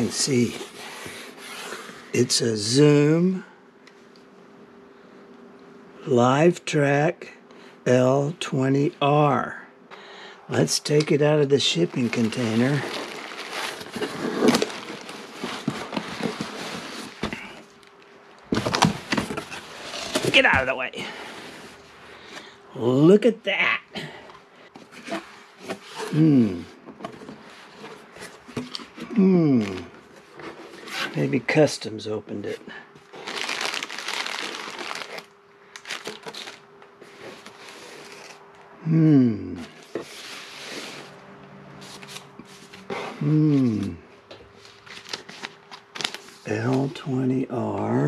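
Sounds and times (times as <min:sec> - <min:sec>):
bubble wrap crackling and rustling: 0:11.7 - 0:18.0, 0:33.1 - 0:38.4, 0:44.6 - 0:47.1
cardboard scraping: 0:11.9 - 0:17.6, 0:18.5 - 0:21.8, 0:39.8 - 0:41.2
plastic bag crinkling: 0:12.0 - 0:17.2, 0:33.1 - 0:36.6.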